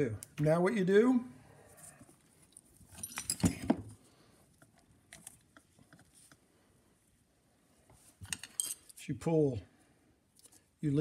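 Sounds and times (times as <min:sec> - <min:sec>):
clicks of tools and metal parts: 0:02.9 - 0:03.9, 0:08.2 - 0:09.0.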